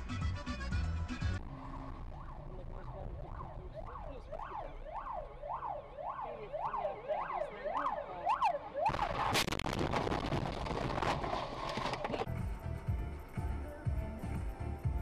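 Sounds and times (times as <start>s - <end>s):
emergency siren yelping: 1.6s - 9.3s.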